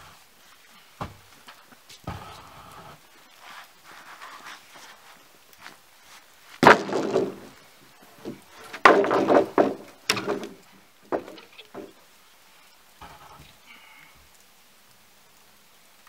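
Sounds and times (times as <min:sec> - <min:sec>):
wooden floorboards banging and clattering: 0:01.0 - 0:02.4, 0:06.6 - 0:07.6, 0:08.2 - 0:12.0.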